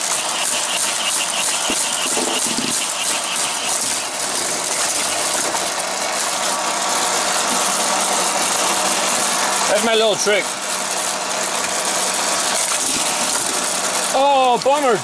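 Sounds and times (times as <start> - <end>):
toy motor whirring: 0.0 - 5.9
fast rattle: 0.0 - 6.6.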